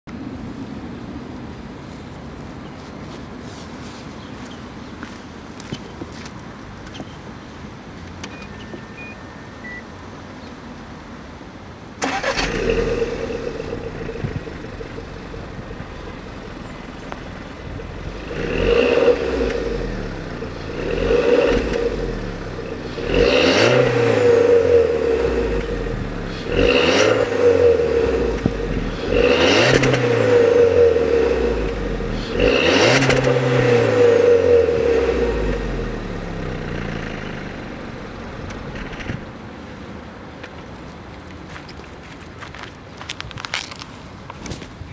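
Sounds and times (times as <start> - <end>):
car engine idling and revving: 12.0 - 39.8.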